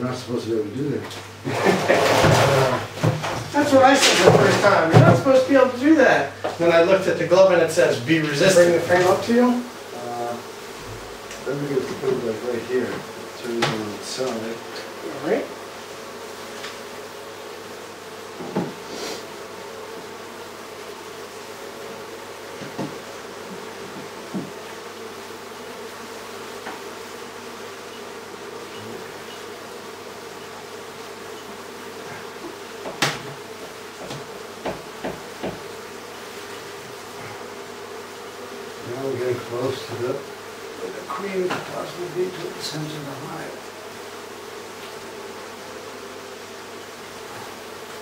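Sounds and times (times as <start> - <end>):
bees buzzing: 0.0 - 48.0
sharp knocks and taps: 34.0 - 35.6.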